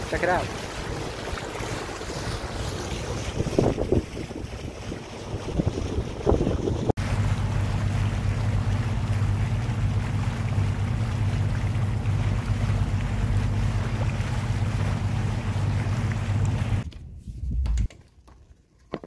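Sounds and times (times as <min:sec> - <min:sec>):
water splashing along boat hull: 0:00.0 - 0:17.0
steady low hum: 0:07.0 - 0:17.9.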